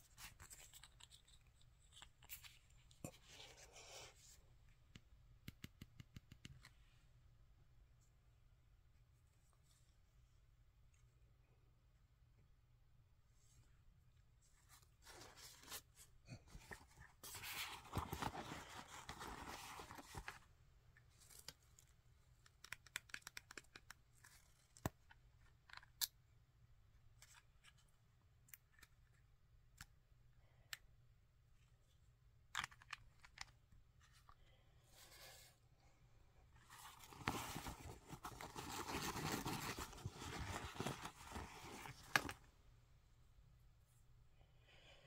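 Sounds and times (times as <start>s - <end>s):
plastic and cardboard rustling: 14.6s - 20.5s, 36.6s - 42.5s.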